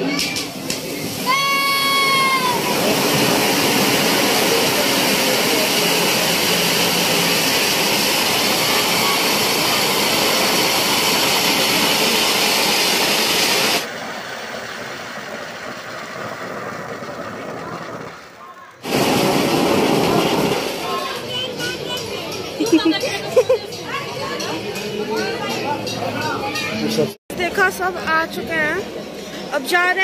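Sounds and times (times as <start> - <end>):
spark fountain hissing: 0.0 - 23.4.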